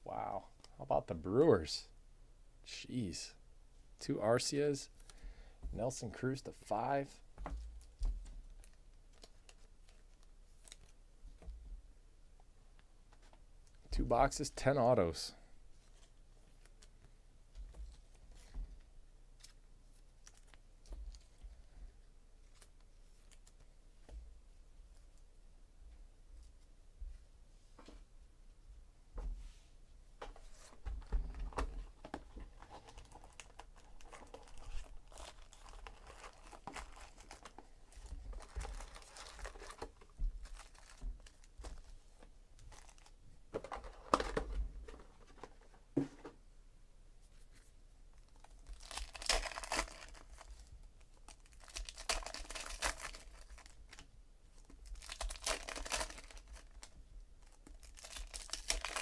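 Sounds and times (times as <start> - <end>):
card wrappers crinkling and tearing: 32.5 - 41.9, 42.6 - 43.1, 48.2 - 59.0.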